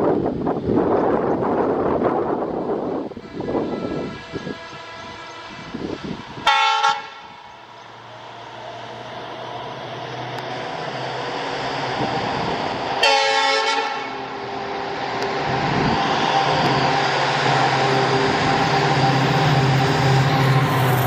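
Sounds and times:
locomotive engine and wheel noise: 0:00.0 - 0:21.0
locomotive horn blasts: 0:03.2 - 0:07.3, 0:13.0 - 0:14.2.

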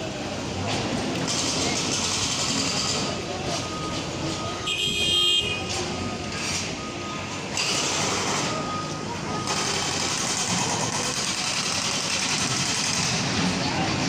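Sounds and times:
street and engine noise: 0:00.0 - 0:14.0
truck reversing alarm beeps: 0:01.6 - 0:13.1.

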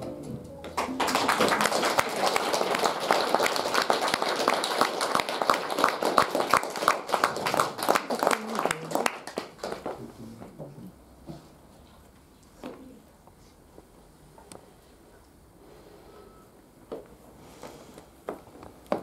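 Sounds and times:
audience applauding: 0:00.7 - 0:10.1.

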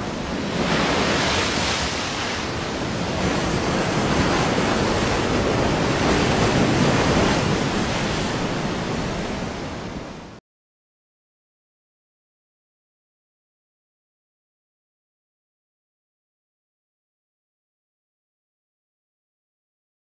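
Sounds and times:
ocean waves breaking: 0:00.0 - 0:10.4.

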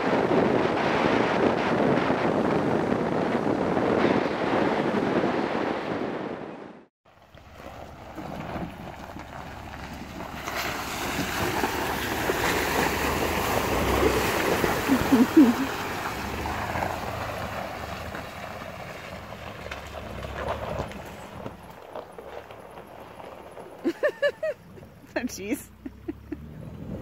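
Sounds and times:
wind rushing over microphone: 0:00.0 - 0:06.9
road and engine noise: 0:00.0 - 0:27.0.

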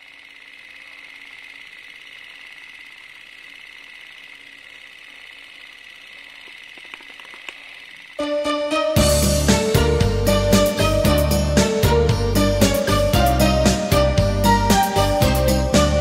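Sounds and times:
film projector whirring: 0:00.0 - 0:16.0
projector clicks: 0:06.3 - 0:08.1.

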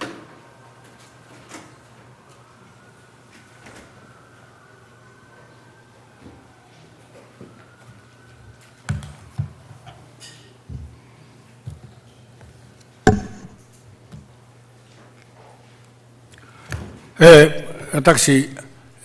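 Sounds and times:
knocks on wooden lectern: 0:13.1 - 0:13.6.

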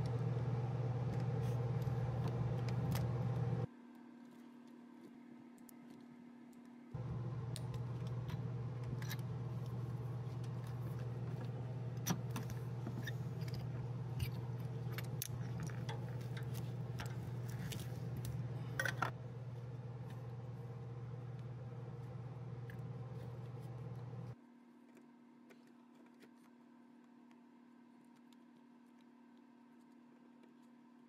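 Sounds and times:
steady low hum: 0:00.0 - 0:03.7, 0:07.0 - 0:24.4.

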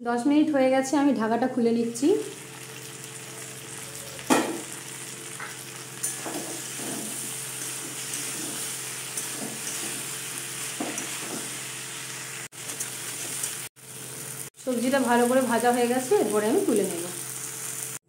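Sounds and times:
vegetables sizzling in a pan: 0:01.9 - 0:18.0
metal spatula scraping a pan: 0:06.0 - 0:11.7.

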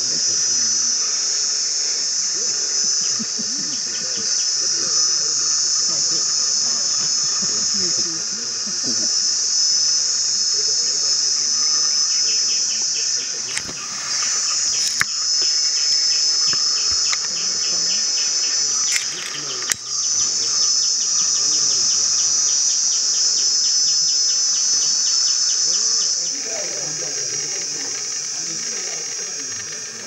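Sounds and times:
insect chirping: 0:00.0 - 0:30.0
insects droning: 0:00.0 - 0:30.0
sharp clicks: 0:13.4 - 0:20.4.

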